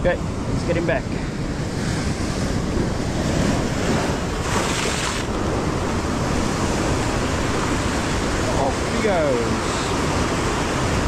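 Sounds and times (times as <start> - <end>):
wind buffeting microphone: 0.0 - 11.0
surf breaking over rocks: 2.7 - 11.0.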